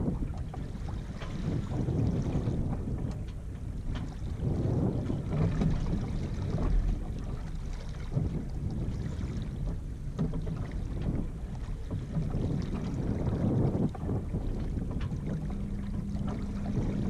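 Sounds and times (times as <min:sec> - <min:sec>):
water washing along hull: 0:00.0 - 0:17.0
wind buffeting microphone: 0:00.0 - 0:17.0.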